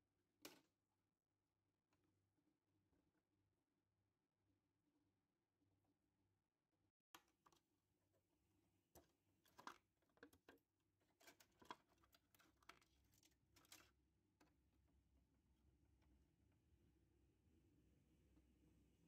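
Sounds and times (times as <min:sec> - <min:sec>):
fingers handling plastic parts: 0:09.0 - 0:13.9.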